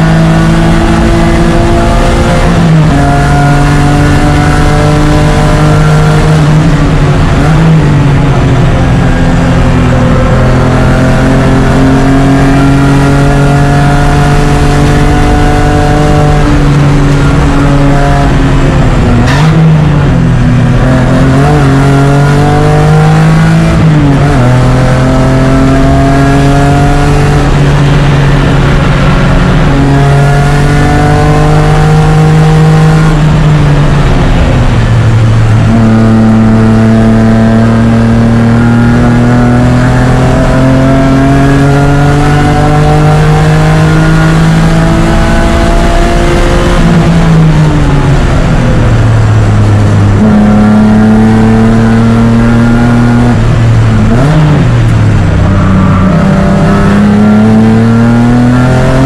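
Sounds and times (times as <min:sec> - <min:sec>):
race car engine accelerating: 0:00.0 - 0:59.0.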